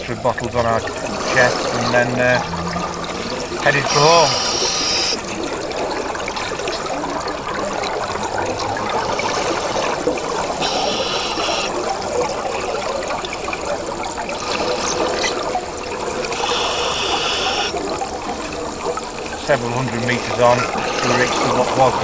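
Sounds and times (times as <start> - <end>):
underwater breathing bubbles: 0.8 - 19.4
high breath hiss: 3.8 - 5.2, 10.6 - 11.8, 16.4 - 17.8.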